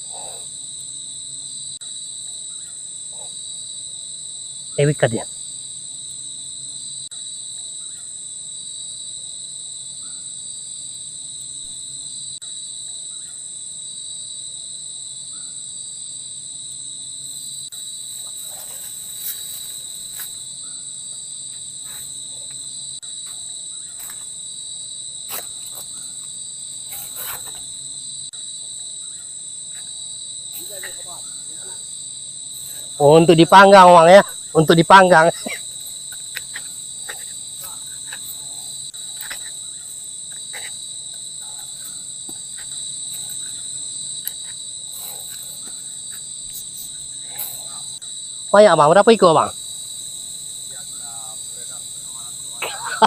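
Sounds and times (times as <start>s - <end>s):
insects shrilling: 0.0s - 1.8s, 17.0s - 53.0s.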